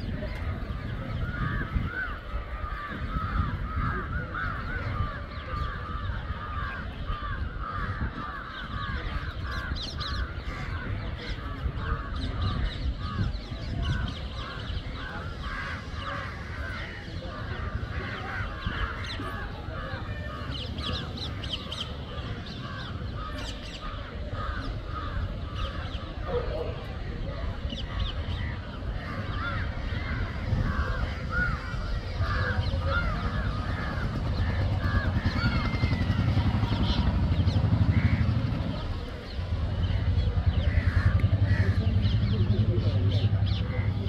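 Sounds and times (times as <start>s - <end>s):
crows cawing: 1.2s - 26.2s, 27.7s - 38.6s, 39.8s - 42.4s.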